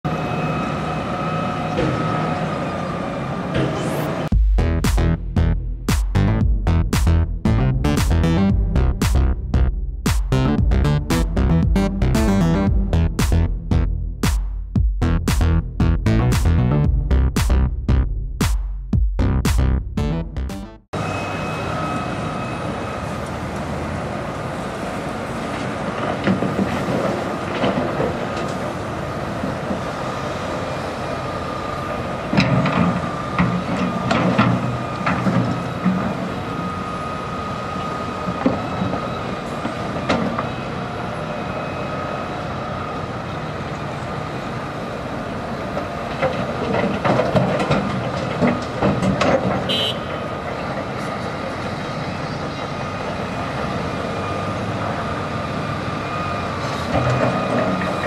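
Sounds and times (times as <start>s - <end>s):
diesel engine running: 0.1s - 58.0s
high hydraulic whine: 21.0s - 25.6s.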